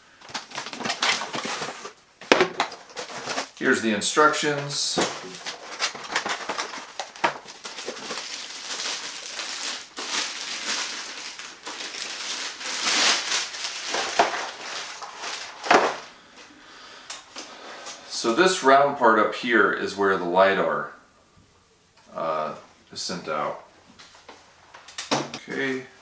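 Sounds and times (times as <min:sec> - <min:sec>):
plastic bag crinkling: 0:00.0 - 0:16.2
sharp crackle: 0:05.8 - 0:15.6.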